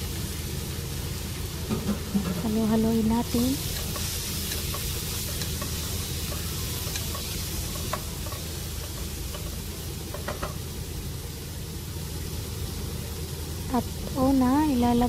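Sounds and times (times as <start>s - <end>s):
shrimp and onions sizzling in oil: 0.0s - 15.0s
spatula stirring in pot: 3.3s - 10.6s
spatula tapping pan: 3.6s - 10.7s.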